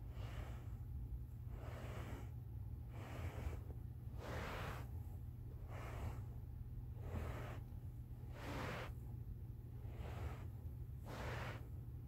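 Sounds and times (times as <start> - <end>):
heavy rhythmic breathing: 0.0 - 9.0
steady low hum: 0.0 - 12.0.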